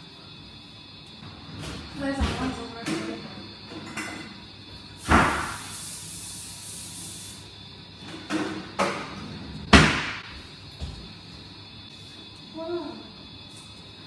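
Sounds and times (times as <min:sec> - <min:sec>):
hiss: 0:04.8 - 0:07.6
oven door thump: 0:09.7 - 0:10.3.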